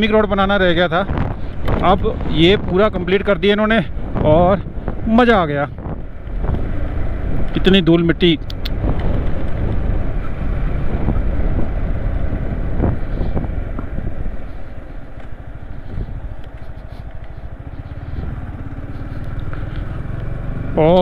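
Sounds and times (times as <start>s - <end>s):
road and wind rush: 0.0s - 21.0s
motorcycle engine running: 8.4s - 21.0s.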